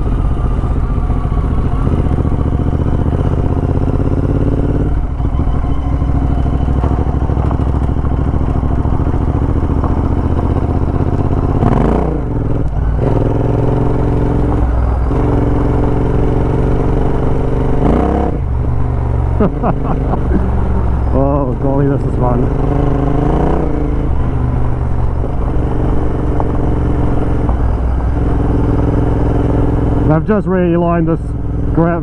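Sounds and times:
motorcycle engine running: 0.0 - 32.0.

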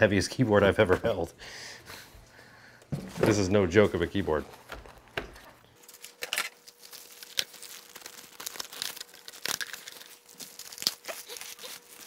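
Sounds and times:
plastic packaging crinkling: 4.2 - 12.0.

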